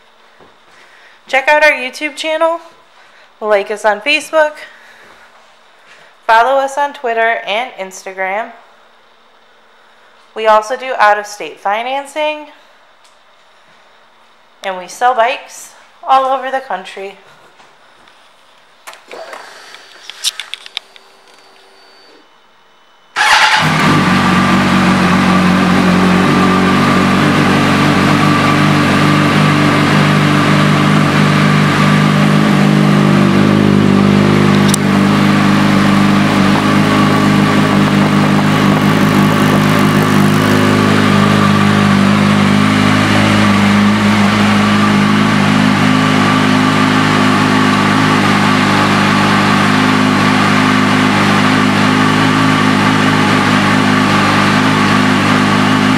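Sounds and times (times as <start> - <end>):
motorcycle engine idling: 23.2 - 55.9.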